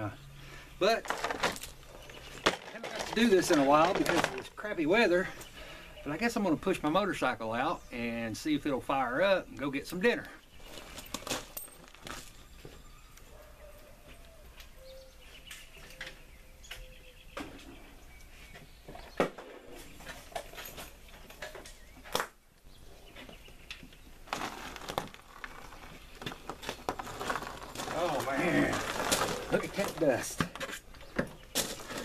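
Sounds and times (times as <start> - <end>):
motorcycle pushed over gravel: 0.8 - 4.7, 24.2 - 30.4.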